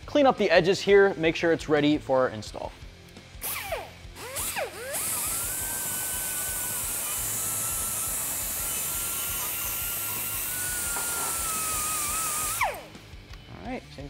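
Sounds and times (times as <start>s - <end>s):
pneumatic die grinder whining: 3.4s - 12.9s.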